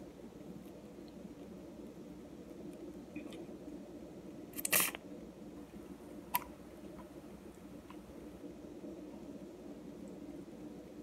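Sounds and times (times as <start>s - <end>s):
steady low hum: 0.0s - 11.0s
rustle-squirt of injector: 4.6s - 5.0s.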